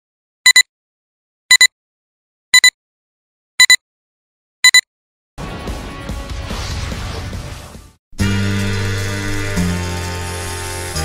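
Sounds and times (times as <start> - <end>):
short high electronic beeps: 0.5 - 0.7, 1.5 - 1.7, 2.6 - 2.8, 3.6 - 3.8, 4.6 - 4.8.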